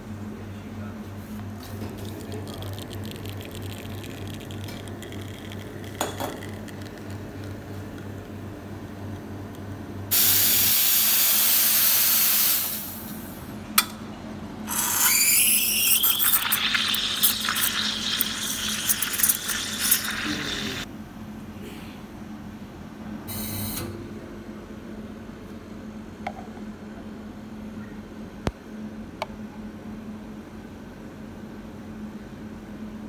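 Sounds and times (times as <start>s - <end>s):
espresso pump humming: 1.6s - 8.3s, 14.7s - 20.9s
steam frothing milk: 14.7s - 20.9s
steam wand hissing: 17.2s - 20.8s.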